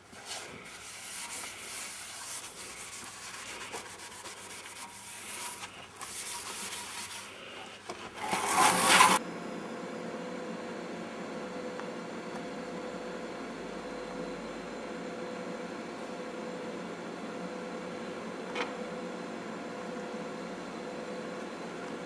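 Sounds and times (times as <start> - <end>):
abrasive pad scratching metal: 0.0 - 9.2
welding hum: 0.0 - 9.2.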